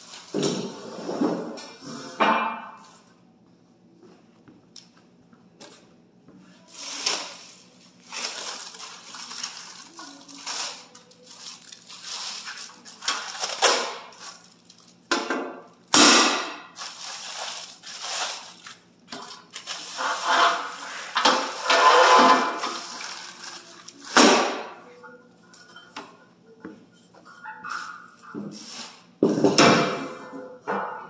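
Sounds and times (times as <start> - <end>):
plastic wrapping crinkling: 6.6 - 15.1, 16.7 - 24.5.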